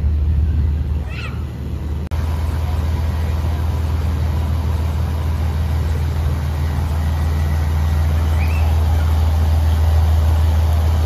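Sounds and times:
ferry engine humming: 0.0 - 11.0.

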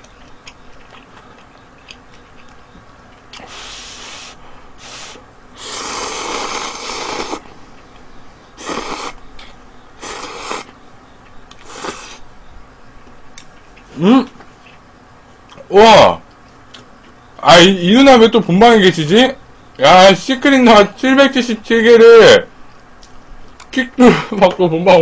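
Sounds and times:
person slurping noodles: 3.5 - 7.4, 8.6 - 9.2, 10.0 - 10.7, 11.6 - 12.2.

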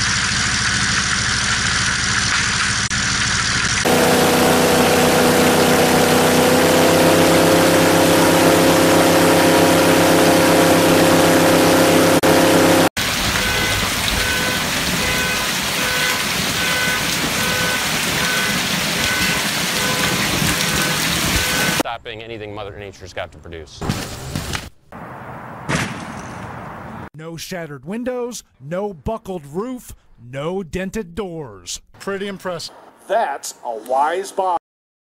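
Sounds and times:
airboat engine and propeller: 0.1 - 12.9.

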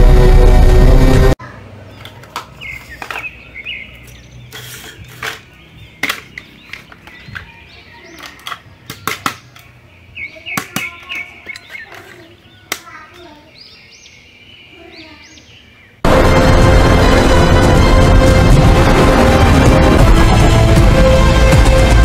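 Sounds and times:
plastic toys clicking and tapping: 2.0 - 3.4, 4.0 - 9.8, 10.5 - 13.2.

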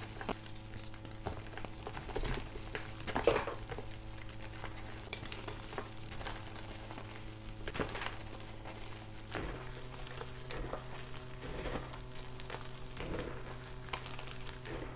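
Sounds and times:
chalk crunching by hand: 7.8 - 14.9.

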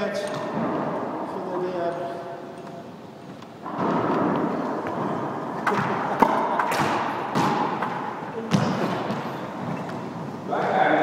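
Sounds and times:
squash ball knocks: 5.6 - 9.3.

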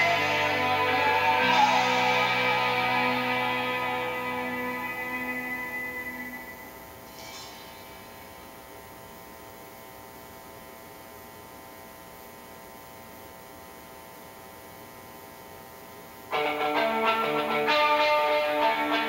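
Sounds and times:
guitar music: 0.0 - 6.7, 16.3 - 19.0
electrical mains hum: 0.0 - 19.0.

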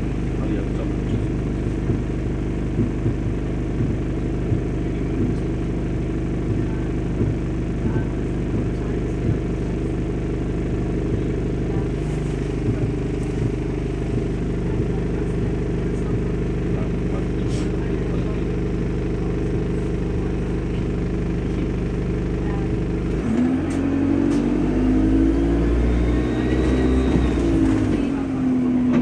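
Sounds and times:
bus engine drone: 0.0 - 29.0
bodywork knocks and rattles: 1.1 - 5.7, 6.5 - 14.7.

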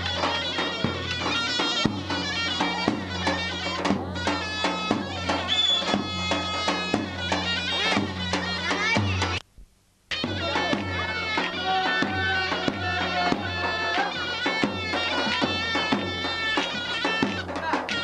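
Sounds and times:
instrumental folk music: 0.0 - 9.5, 10.1 - 18.0.

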